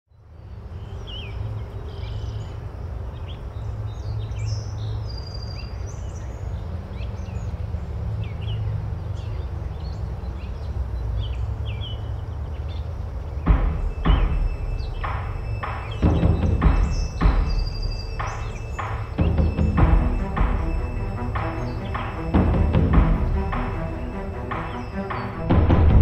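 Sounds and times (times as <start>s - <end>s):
birds chirping: 0.1s - 26.0s
low outdoor rumble: 6.3s - 26.0s.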